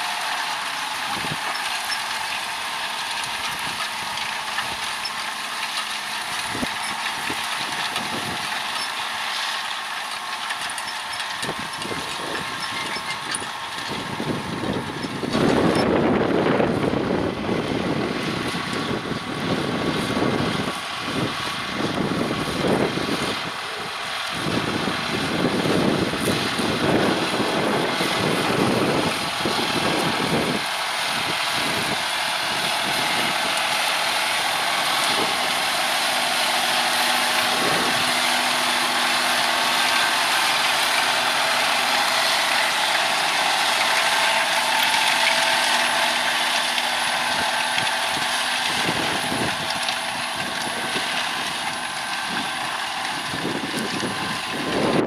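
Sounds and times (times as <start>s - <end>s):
tractor diesel engine running: 0.0s - 55.0s
wind buffeting microphone: 11.4s - 33.8s, 47.1s - 55.0s.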